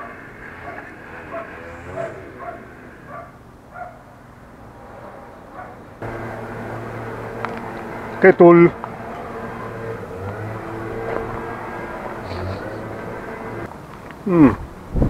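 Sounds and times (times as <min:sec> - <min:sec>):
dog barking: 0:00.0 - 0:04.1, 0:05.5 - 0:05.8.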